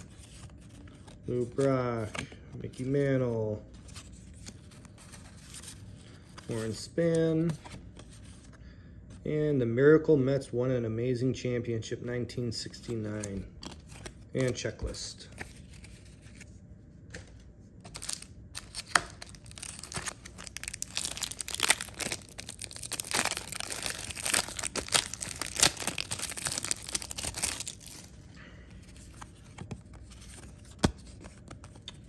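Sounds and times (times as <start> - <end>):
wrapper tearing and crinkling: 17.9 - 28.2.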